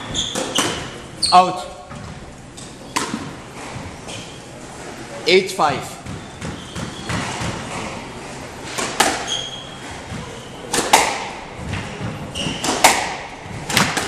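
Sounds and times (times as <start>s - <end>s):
shoes squeaking on wooden floor: 0.0s - 5.2s, 5.9s - 10.7s, 11.5s - 13.6s
squash ball cracking off walls: 8.7s - 14.0s.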